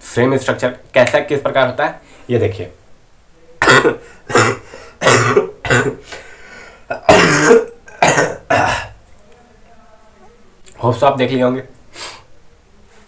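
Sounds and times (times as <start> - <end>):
man clearing his throat: 3.6 - 6.1, 6.9 - 9.0
man coughing: 3.6 - 6.1, 6.9 - 9.0.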